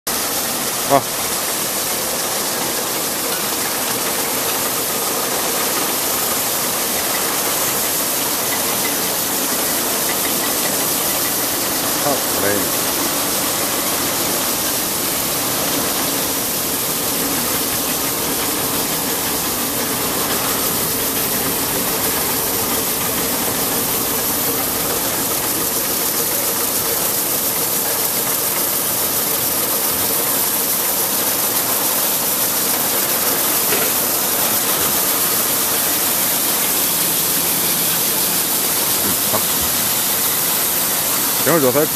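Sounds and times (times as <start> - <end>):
water spray: 0.1 - 41.9
rotating brushes scrubbing bottles: 33.2 - 41.9.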